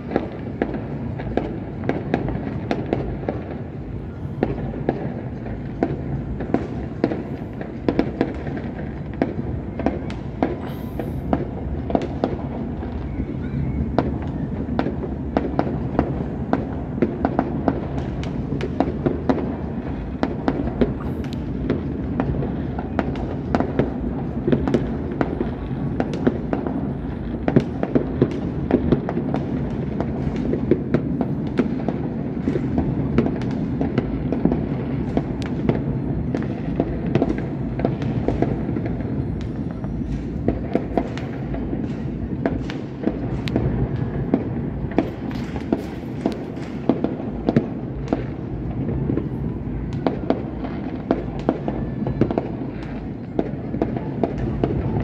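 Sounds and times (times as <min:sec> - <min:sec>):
fireworks bangs and pops: 0:00.0 - 0:55.0.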